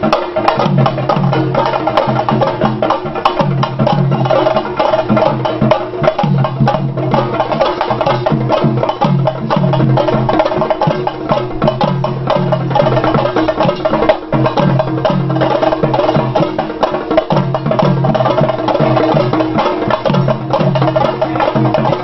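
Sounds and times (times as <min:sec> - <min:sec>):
drums beaten in fast rolls: 0:00.0 - 0:22.0
steady low drum beat: 0:00.0 - 0:22.0.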